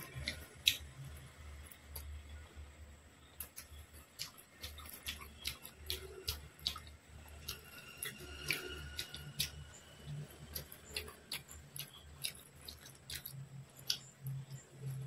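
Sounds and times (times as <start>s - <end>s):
wet chewing sounds: 0.0s - 2.6s, 3.3s - 15.0s
low steady hum: 0.0s - 15.0s
fingers tearing bread: 3.4s - 15.0s.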